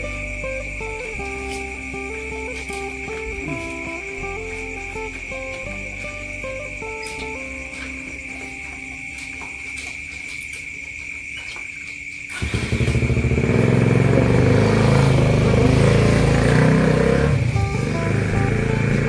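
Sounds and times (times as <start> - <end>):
faint background music: 0.0 - 11.0, 14.0 - 19.0
engine running with pulsing rumble: 12.3 - 19.0.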